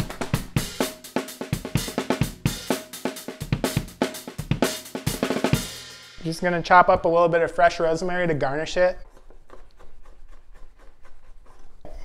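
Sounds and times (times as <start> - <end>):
drum kit playing fast beat: 0.0 - 6.8.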